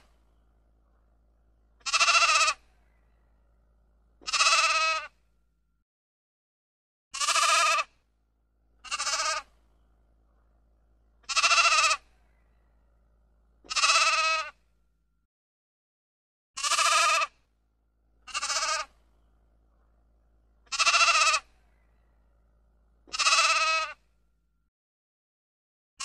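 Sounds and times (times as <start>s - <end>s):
sheep bleating: 1.8s - 3.0s, 4.2s - 5.1s, 7.2s - 7.9s, 8.8s - 9.5s, 11.2s - 12.1s, 13.6s - 14.6s, 16.6s - 17.3s, 18.3s - 18.9s, 20.6s - 21.6s, 23.1s - 24.0s.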